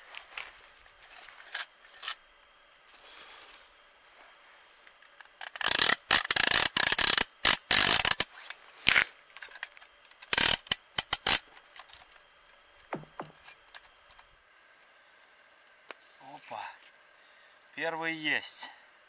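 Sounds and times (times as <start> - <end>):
fishing reel ratchet clicking: 5.4 - 8.3, 10.3 - 11.4.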